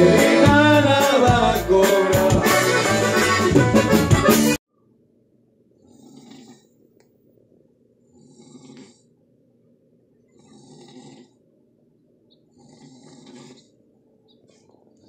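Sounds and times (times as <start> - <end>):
man snoring: 5.8 - 6.8, 8.1 - 9.1, 10.3 - 11.4, 12.5 - 13.8.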